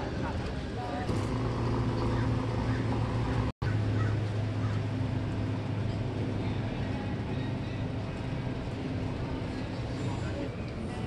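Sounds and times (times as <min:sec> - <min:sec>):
vehicle engine idling: 0:00.9 - 0:08.5.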